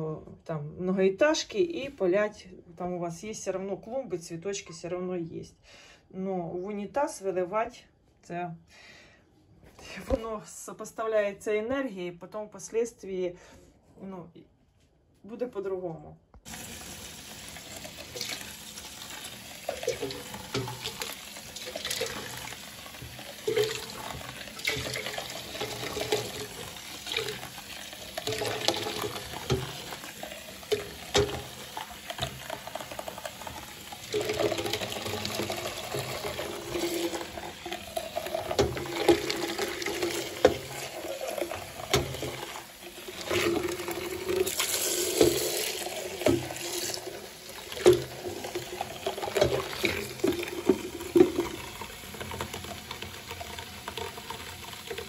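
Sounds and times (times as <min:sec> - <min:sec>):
tap running into bowl: 0:16.5 - 0:55.0
water splashing: 0:16.5 - 0:55.0.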